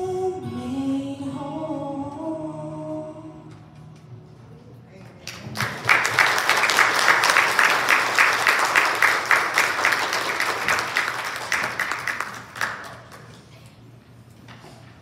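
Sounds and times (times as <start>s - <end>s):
congregation applauding: 5.2s - 13.5s.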